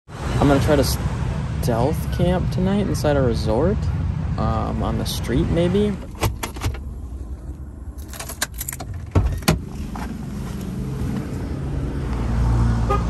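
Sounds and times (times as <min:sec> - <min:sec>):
street traffic rumble: 0:00.1 - 0:13.0
car door handle and latch clicks: 0:06.0 - 0:06.8, 0:08.0 - 0:09.6.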